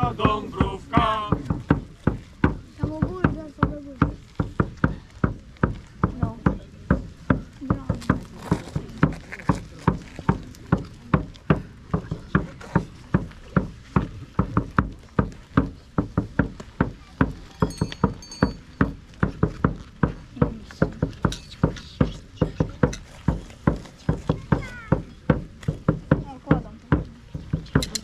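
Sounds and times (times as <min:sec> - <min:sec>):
rhythmic percussion beats: 0:00.0 - 0:28.0
high ringing tones: 0:17.6 - 0:18.8.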